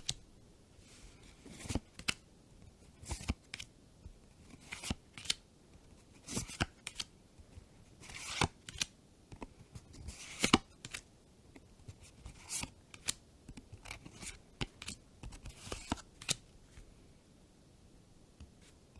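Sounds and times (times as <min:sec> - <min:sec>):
cards sliding against cards: 0:00.9 - 0:02.2, 0:04.5 - 0:05.4, 0:06.2 - 0:07.1, 0:08.0 - 0:08.9, 0:10.0 - 0:11.0, 0:11.9 - 0:13.2, 0:13.8 - 0:16.8.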